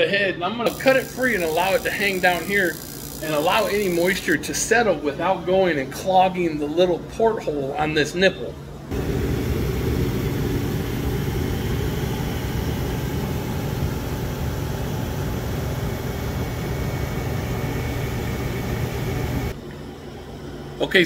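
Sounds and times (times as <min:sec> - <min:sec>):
furnace fan whooshing: 0:00.7 - 0:06.8, 0:08.9 - 0:19.6.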